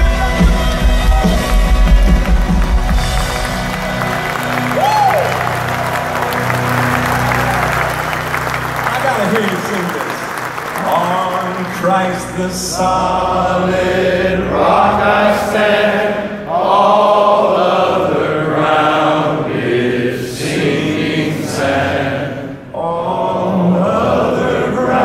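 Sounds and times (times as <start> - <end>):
crowd of men singing: 11.6 - 25.0.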